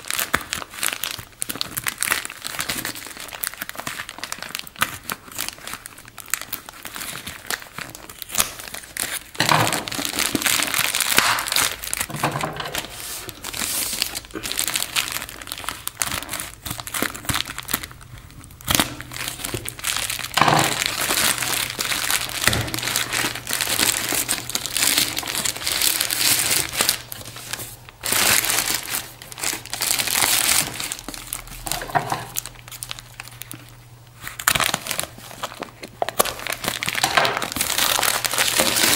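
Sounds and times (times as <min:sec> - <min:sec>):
foil bag crinkling: 0:00.0 - 0:38.9.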